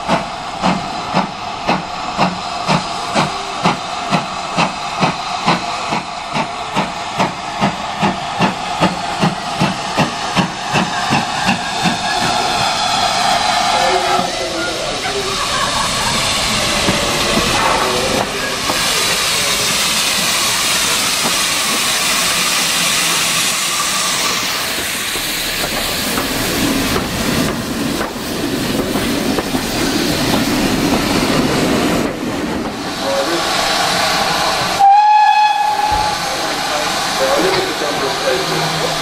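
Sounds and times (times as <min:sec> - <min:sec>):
steam locomotive hissing: 0:00.0 - 0:39.0
steam whistle: 0:34.8 - 0:36.2.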